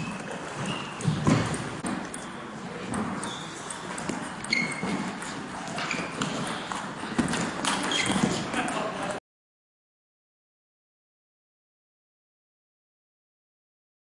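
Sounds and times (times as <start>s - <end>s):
murmur of sports hall: 0.0s - 9.2s
short high squeaks: 3.2s - 5.1s, 7.8s - 8.4s.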